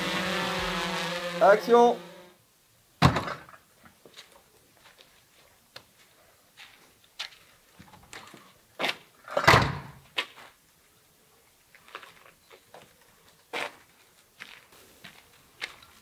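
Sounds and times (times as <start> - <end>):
door banging shut: 3.0 - 3.5, 9.4 - 9.9
footsteps on pavement: 4.0 - 9.1, 11.7 - 16.0.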